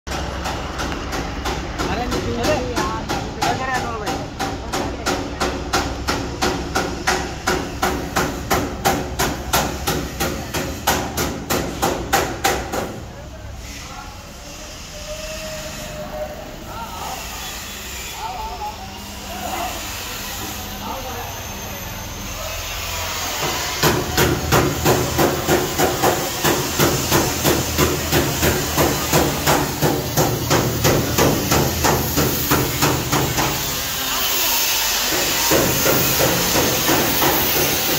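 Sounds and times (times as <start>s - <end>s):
hammering on metal: 0.1s - 13.1s, 23.2s - 37.9s
steady workshop hiss: 0.1s - 37.9s.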